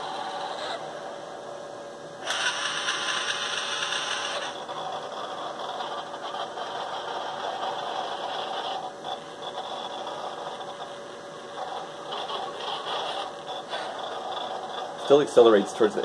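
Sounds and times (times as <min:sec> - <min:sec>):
robot arm motors whirring: 0:02.2 - 0:10.9.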